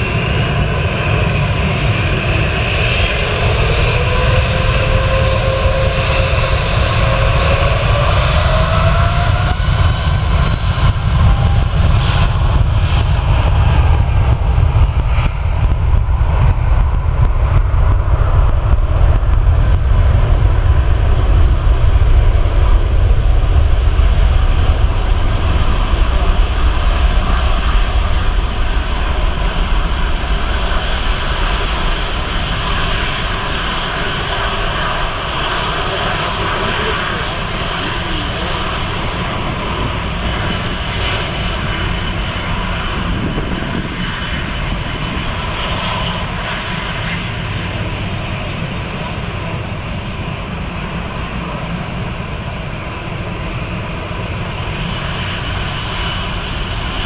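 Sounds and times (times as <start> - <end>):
jet engines taxiing: 0.0 - 57.0.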